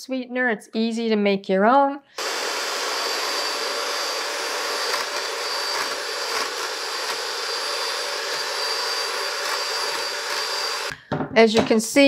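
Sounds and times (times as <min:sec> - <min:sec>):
electric hand mixer whirring: 0:02.2 - 0:11.0.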